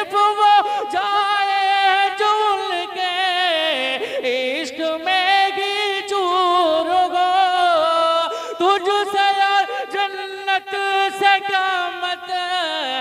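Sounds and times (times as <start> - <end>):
man singing devotional poem: 0.0 - 13.0.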